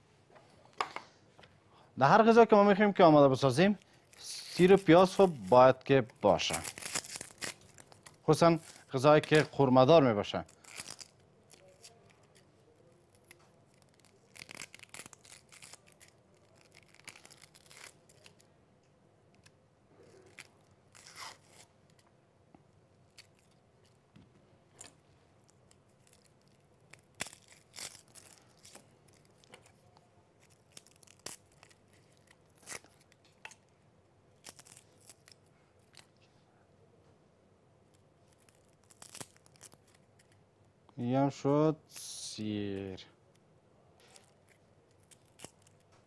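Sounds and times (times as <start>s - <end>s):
onion skins crackling and scraping: 2.9s - 18.5s, 19.3s - 22.1s, 22.9s - 24.0s, 24.7s - 33.8s, 34.4s - 36.3s, 37.9s - 40.4s, 44.0s - 46.0s.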